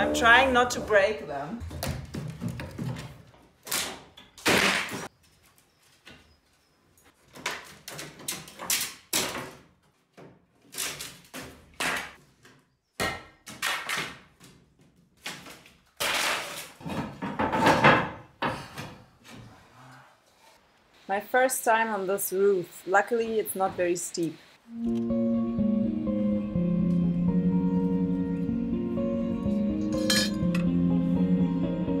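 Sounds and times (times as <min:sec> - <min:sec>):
boards pried with crowbar: 0:15.2 - 0:18.2.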